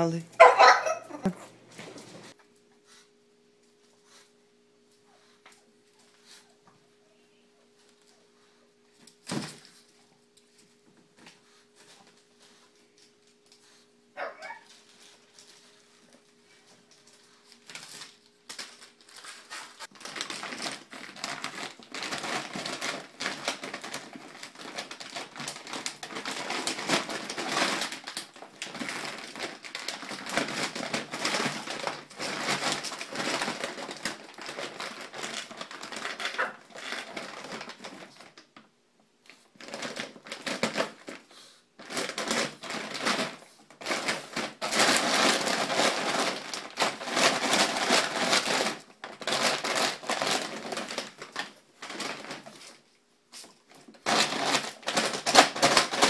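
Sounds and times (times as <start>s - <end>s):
faint steady hum: 0.0s - 56.0s
plastic bag crinkling: 8.9s - 38.7s, 39.3s - 56.0s.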